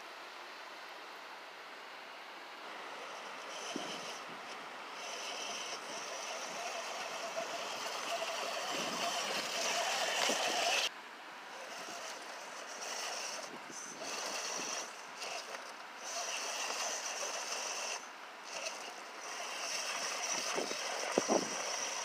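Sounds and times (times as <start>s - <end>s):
electric motor and gears whining: 2.6s - 10.9s, 11.5s - 22.0s
wind hissing on microphone: 3.4s - 10.9s, 11.7s - 15.4s, 16.1s - 22.0s.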